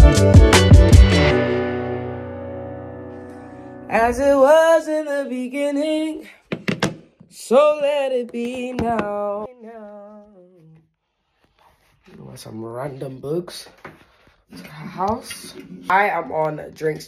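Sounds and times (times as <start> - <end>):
woman singing wordless phrases: 3.9 - 6.3, 7.3 - 10.8.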